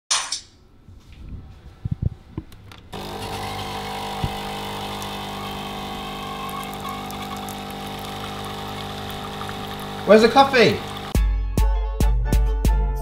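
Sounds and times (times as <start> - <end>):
coffee machine pump humming: 2.9 - 11.2
coffee pouring into cup: 3.0 - 11.2.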